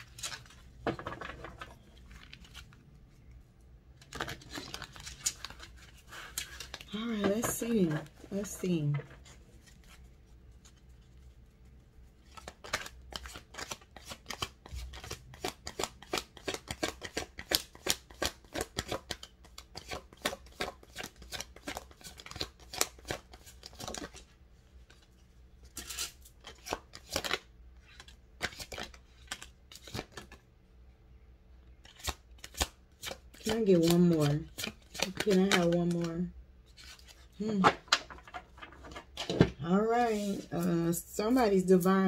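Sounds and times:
cards being shuffled: 0:04.0 - 0:11.1, 0:12.2 - 0:24.2, 0:25.7 - 0:30.4, 0:31.8 - 0:40.8.

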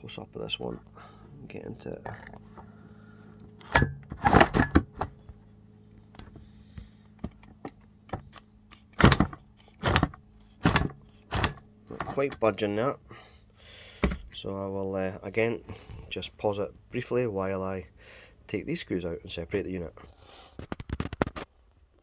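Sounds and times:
screwdriver scraping and clicking: 0:07.4 - 0:12.4.

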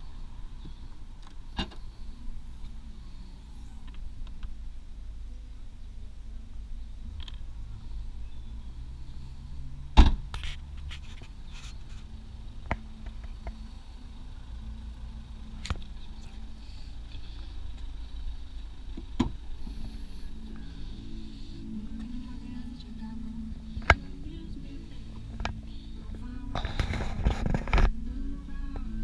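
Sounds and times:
low steady rumble: 0:00.0 - 0:29.0
car tailgate thump: 0:10.0 - 0:10.2.

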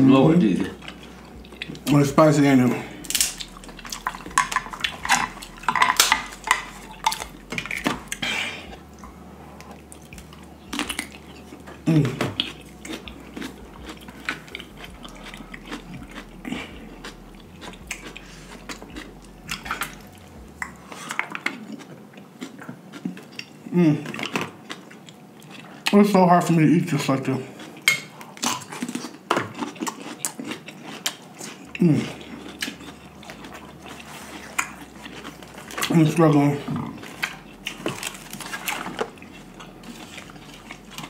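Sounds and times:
utensils clinking on plates: 0:03.2 - 0:08.0
short vocal sound: 0:11.6 - 0:12.5.

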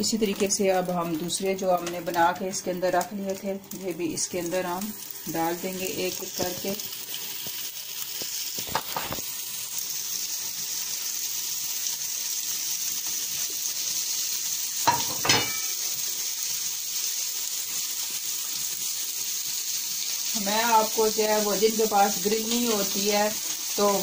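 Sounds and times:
meat patties sizzling on grill: 0:00.0 - 0:24.0.

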